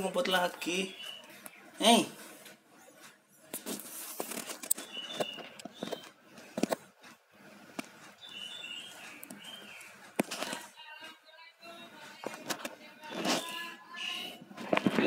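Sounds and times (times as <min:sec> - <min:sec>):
faint bird chirps: 0:00.8 - 0:01.7, 0:04.8 - 0:06.2, 0:08.2 - 0:10.0
clicks and rustling: 0:03.5 - 0:08.1.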